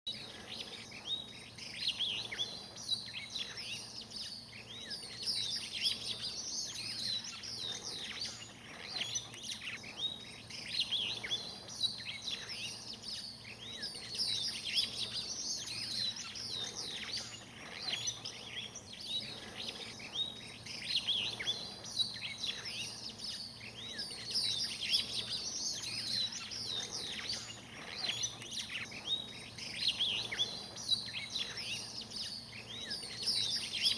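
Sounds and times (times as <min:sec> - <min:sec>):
many birds chirping: 0:00.1 - 0:33.9.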